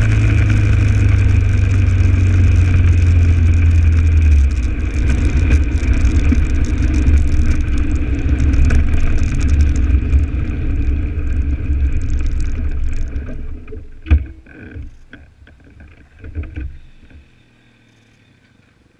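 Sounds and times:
wind rush on microphone: 0.0s - 14.3s
dirt bike engine running: 0.0s - 15.0s.

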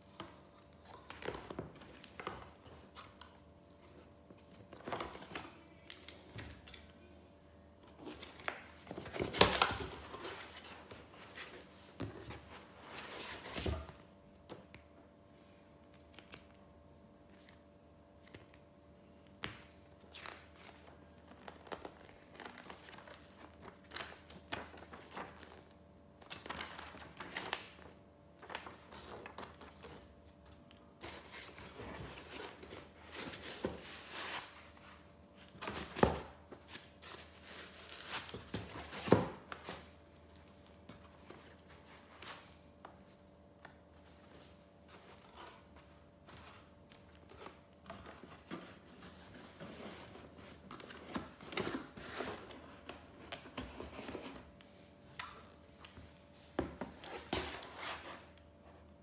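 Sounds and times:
packaging rustling and scraping: 31.0s - 43.2s.

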